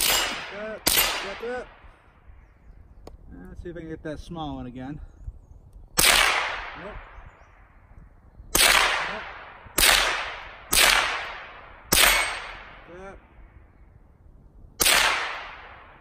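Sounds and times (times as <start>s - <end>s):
rifle shots: 0.0s - 1.8s, 6.0s - 7.2s, 8.5s - 13.0s, 14.8s - 16.0s.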